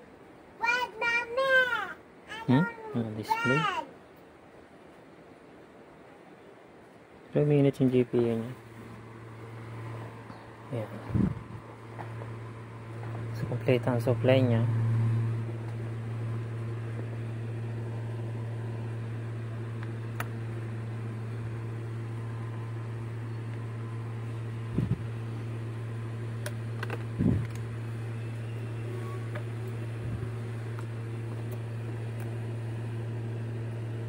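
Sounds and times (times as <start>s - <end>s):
computer fan hiss: 0.0s - 34.0s
low electrical hum: 0.0s - 34.0s.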